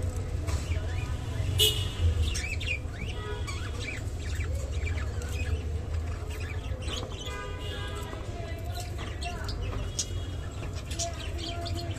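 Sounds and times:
budgerigars chattering: 2.2s - 7.4s.

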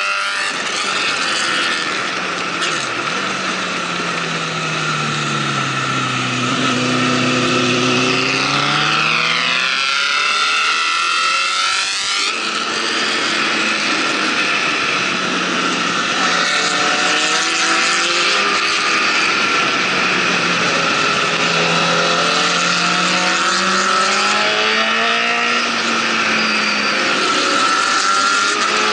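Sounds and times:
motorcycle engine cruising: 0.0s - 28.9s
motorcycle passing by: 5.0s - 13.3s.

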